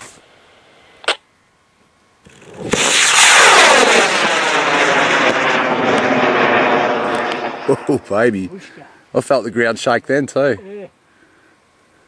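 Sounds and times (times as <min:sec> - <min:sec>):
rocket motor igniting crack: 0:02.2 - 0:08.5
rocket motor roaring: 0:02.2 - 0:08.6.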